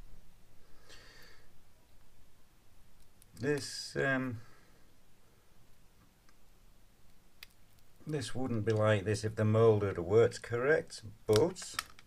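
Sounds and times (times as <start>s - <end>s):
faint clicks of rubber mold: 5.7s - 9.0s, 11.2s - 12.0s.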